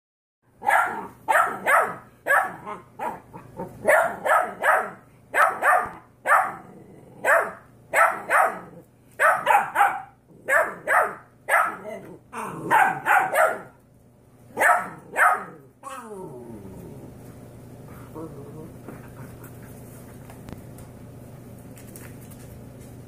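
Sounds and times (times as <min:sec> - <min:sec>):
puppies barking: 0:00.6 - 0:06.6, 0:07.2 - 0:11.9, 0:12.6 - 0:13.8, 0:14.6 - 0:15.6.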